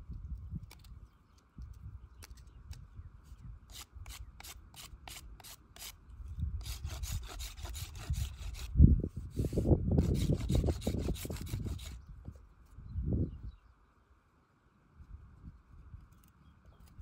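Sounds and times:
hand tool scraping wood: 0:03.7 - 0:06.0, 0:06.6 - 0:12.0.

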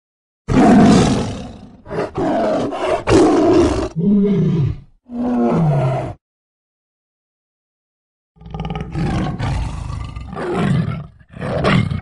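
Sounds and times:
tiger roaring: 0:00.5 - 0:06.2, 0:08.4 - 0:12.0.

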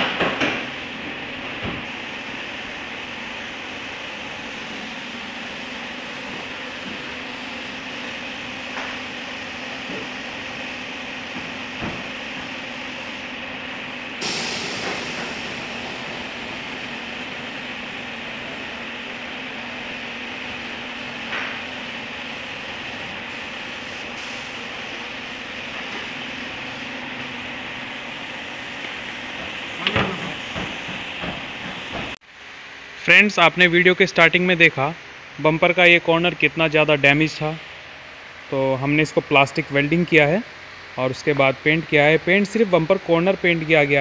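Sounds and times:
paint spray gun hissing: 0:01.9 - 0:32.2.

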